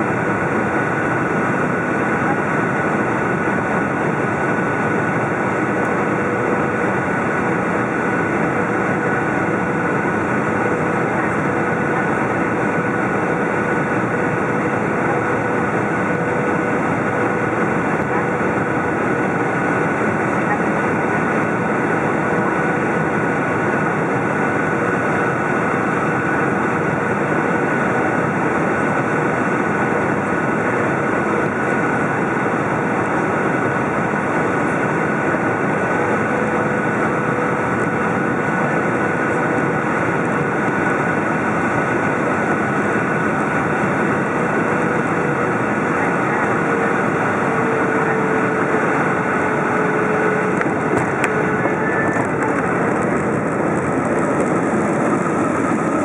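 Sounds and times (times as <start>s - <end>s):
high engine whine: 0.0s - 56.0s
jet engine and airflow noise: 0.0s - 56.0s
low hum: 46.8s - 56.0s.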